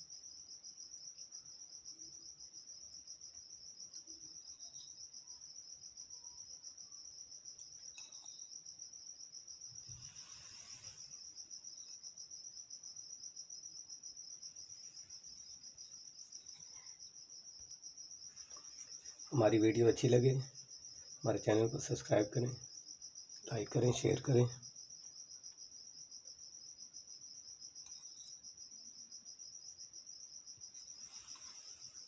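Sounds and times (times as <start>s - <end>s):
cricket trilling: 0.0s - 32.0s
soft hiss: 9.6s - 12.5s, 14.0s - 22.0s, 30.6s - 32.0s.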